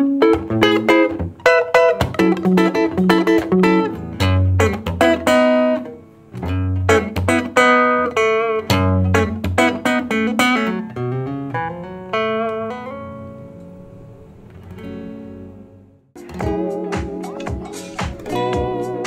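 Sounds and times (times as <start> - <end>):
clean electric guitar chords: 0.0 - 19.0.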